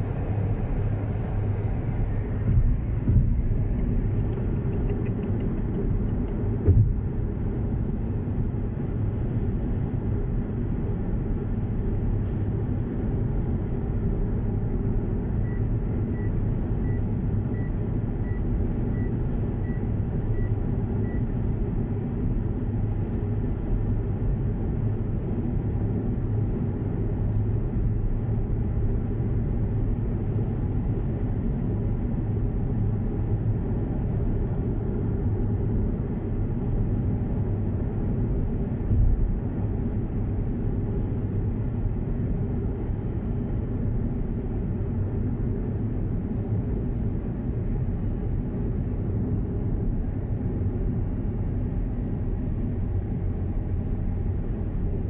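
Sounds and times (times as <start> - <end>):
car cabin road rumble: 0.0 - 55.0
low bump: 2.3 - 4.1.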